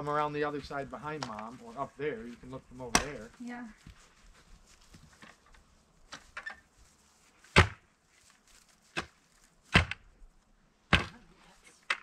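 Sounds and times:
digging tool chopping soil: 2.9 - 3.2, 7.5 - 7.8, 8.9 - 10.1, 10.9 - 11.2.

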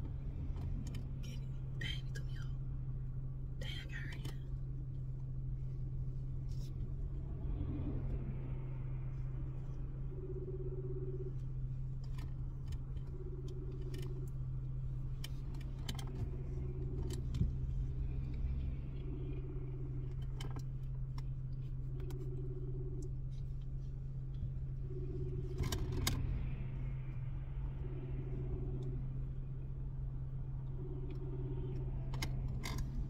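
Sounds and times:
steady low hum: 0.0 - 33.0
phone ringback tone: 10.2 - 11.4.

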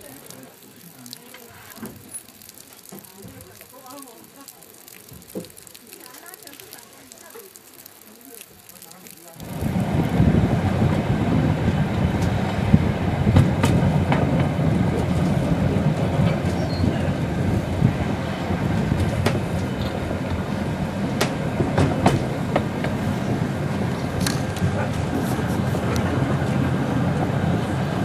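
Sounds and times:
train rumbling: 9.4 - 28.0
wheels clicking and knocking: 9.4 - 28.0.

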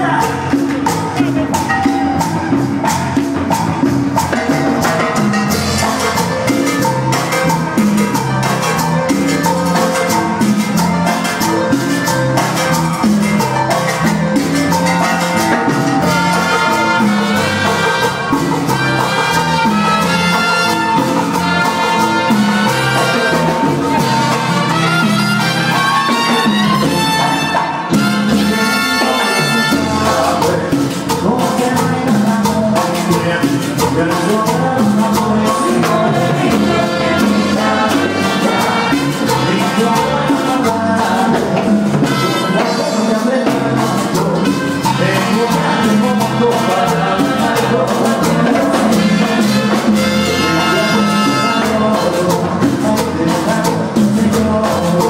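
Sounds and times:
live cumbia band playing: 0.0 - 55.0
percussion steady beat: 0.0 - 55.0.

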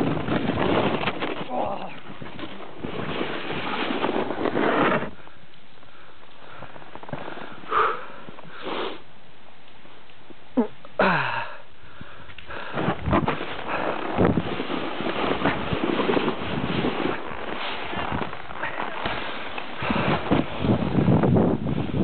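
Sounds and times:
breathy sounds close to microphone: 5.2 - 9.0, 11.0 - 13.0, 18.5 - 20.5
wind buffeting microphone: 12.6 - 22.0.

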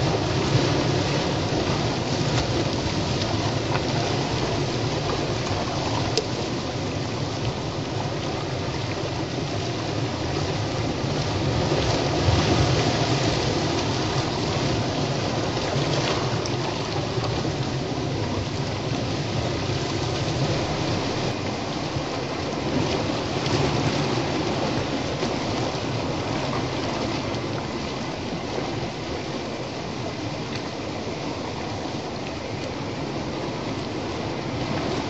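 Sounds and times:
sea waves breaking on rocks: 0.0 - 35.0.

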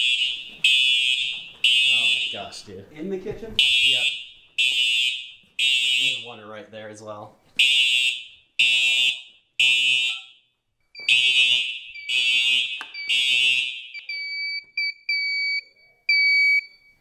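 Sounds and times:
fire alarm horns: 0.0 - 2.6, 3.6 - 6.4, 7.6 - 17.0
alarm panel beeping: 7.6 - 10.4, 11.0 - 17.0.

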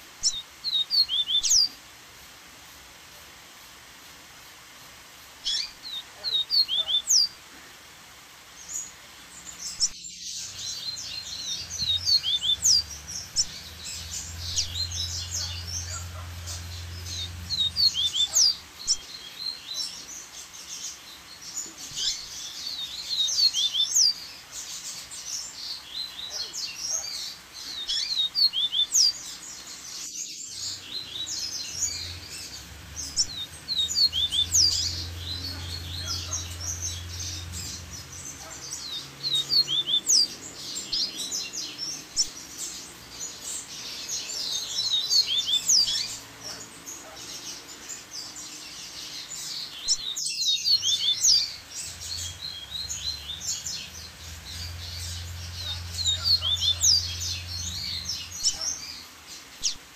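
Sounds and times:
bird singing chirps and trills: 0.0 - 1.8, 5.3 - 7.5, 8.4 - 59.9
waterfall rushing: 10.4 - 19.9, 30.4 - 42.5.

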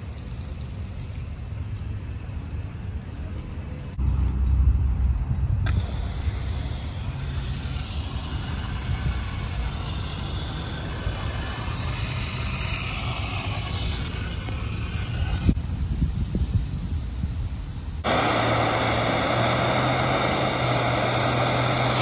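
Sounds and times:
water and air hissing through pipe: 5.6 - 22.0.

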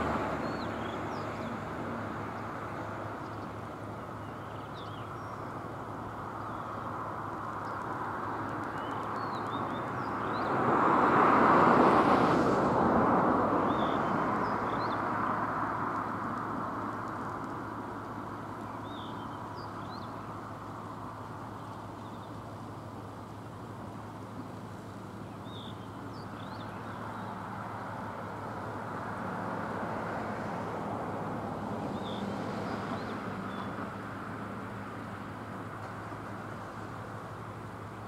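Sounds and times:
birds chirping: 0.0 - 10.6, 13.7 - 28.2, 31.8 - 33.9
outdoor background noise: 0.0 - 38.0.

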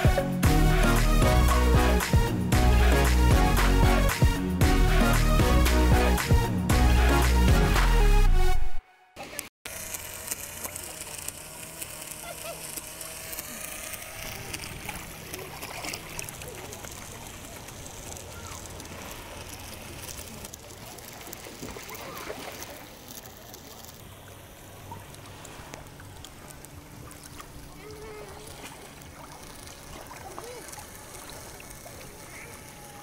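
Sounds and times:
toy boat electric motor: 0.0 - 4.2, 9.2 - 33.0
water lapping: 10.5 - 33.0.

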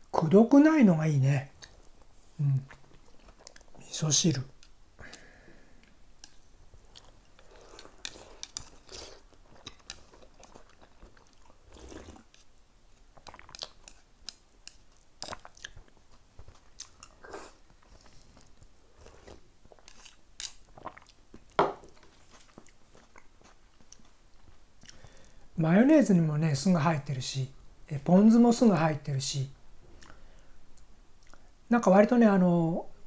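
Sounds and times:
person chewing: 2.5 - 3.8, 4.6 - 25.3, 30.0 - 30.2, 30.8 - 31.5
person sipping soup: 4.6 - 12.5, 13.1 - 24.1.

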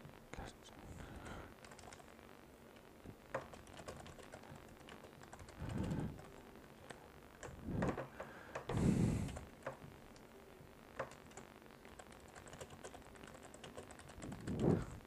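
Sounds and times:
keyboard typing clicks: 1.6 - 2.0, 3.3 - 10.2, 11.0 - 14.8.

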